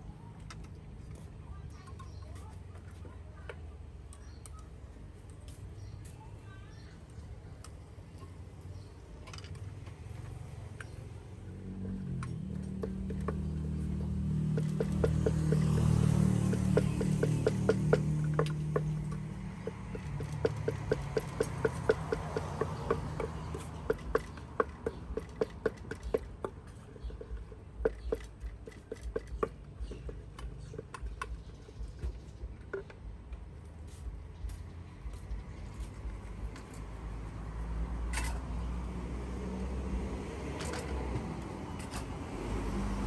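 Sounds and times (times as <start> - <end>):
pestle pounding in a mortar: 12.3 - 32.9.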